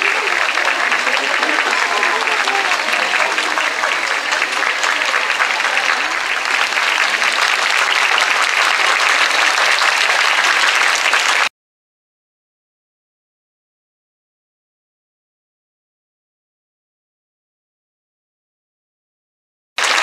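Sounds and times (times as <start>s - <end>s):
large crowd clapping: 0.0s - 11.5s, 19.8s - 20.0s.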